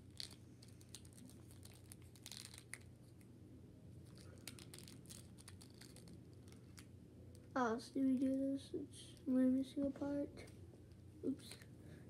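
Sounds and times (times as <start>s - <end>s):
plastic packaging crinkling: 0.0s - 3.2s, 4.1s - 6.9s
low room hum: 0.0s - 12.0s.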